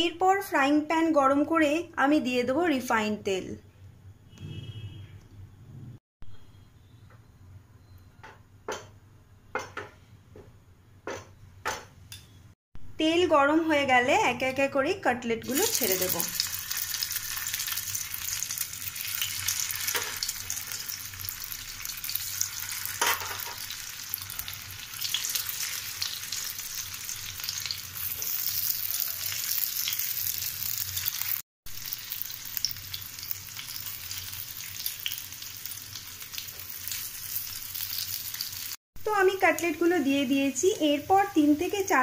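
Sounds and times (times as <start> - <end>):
food sizzling in frying oil: 15.4 - 42.0.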